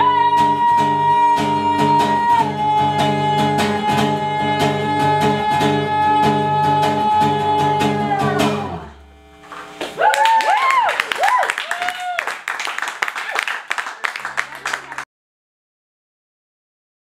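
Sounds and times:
strummed acoustic guitar: 0.0s - 9.0s
woman singing a long high note: 0.0s - 9.0s.

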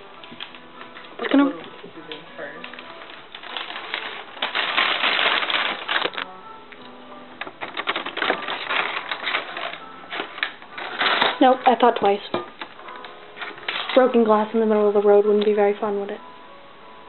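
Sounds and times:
paper bag crinkling: 0.0s - 6.4s, 7.3s - 14.2s.

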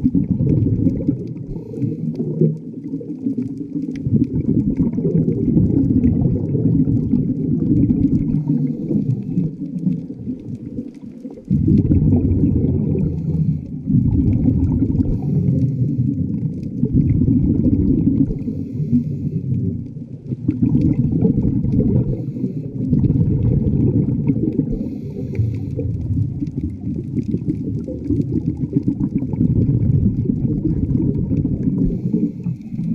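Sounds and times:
muffled underwater rumble: 0.0s - 32.9s
faint hiss: 18.3s - 19.7s, 24.6s - 25.9s.

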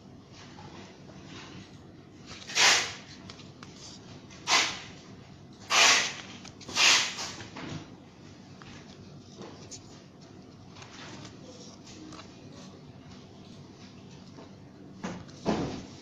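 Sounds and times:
paper pages turning: 2.2s - 4.8s, 5.7s - 7.4s, 8.5s - 12.7s.

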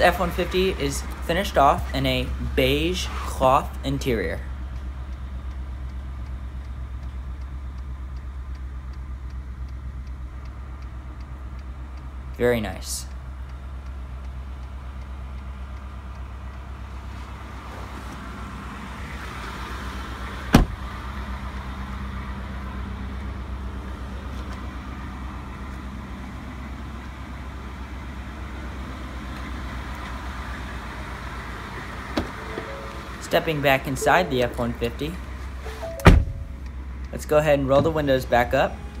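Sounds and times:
pickup engine idling: 0.0s - 39.0s
sharp thump: 20.5s - 20.8s, 36.0s - 36.6s.

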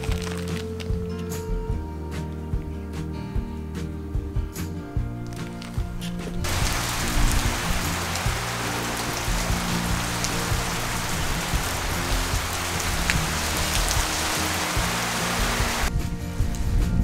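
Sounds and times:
steady rain falling: 0.0s - 0.9s, 6.4s - 17.0s
background music with low notes: 0.0s - 17.0s.

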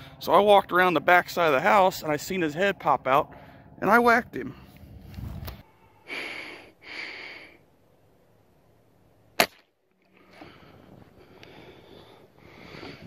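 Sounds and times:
air rifle shot crack: 9.4s - 9.7s.

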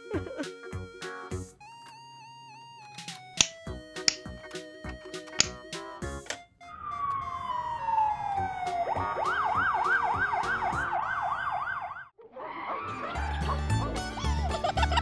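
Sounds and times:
cartoon music: 0.0s - 11.2s, 12.9s - 15.0s
emergency vehicle siren: 6.4s - 13.7s.

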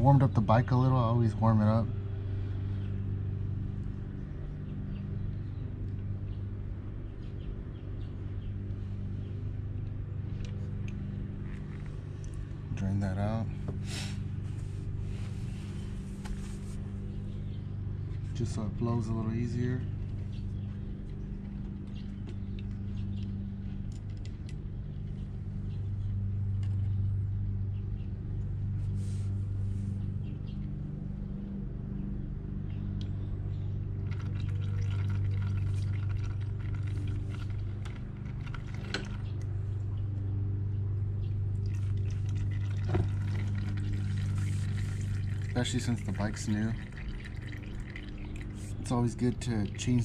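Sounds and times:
steady low hum: 0.0s - 50.0s
oil trickling into plastic pan: 34.0s - 39.2s, 41.6s - 50.0s.

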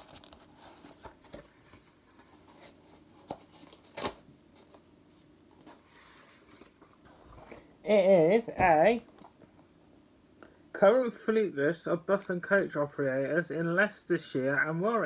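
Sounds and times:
paper pages rustling: 0.0s - 4.8s, 5.6s - 7.7s.

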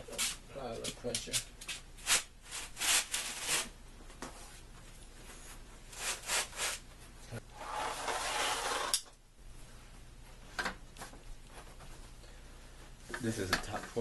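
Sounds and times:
board panel scraping: 7.5s - 9.1s.

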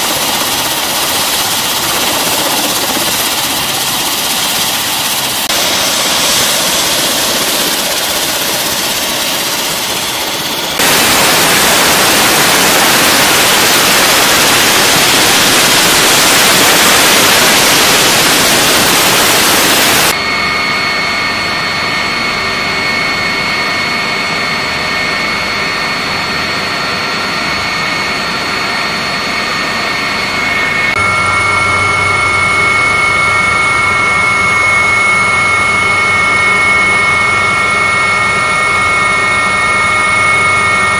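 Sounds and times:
helicopter rotor rushing: 0.0s - 40.9s
high turbine whine: 0.0s - 40.9s.

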